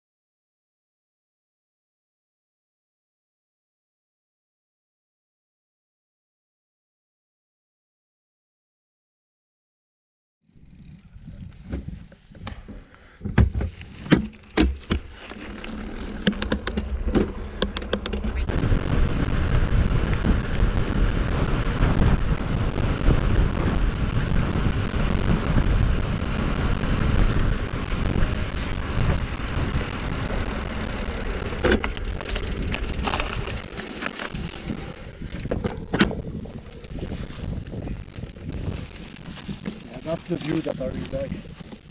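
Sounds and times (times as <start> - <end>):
sharp knocks and rattles: 13.3 - 18.5
tyres rolling on pavement: 13.4 - 41.9
wind buffeting microphone: 14.9 - 41.9.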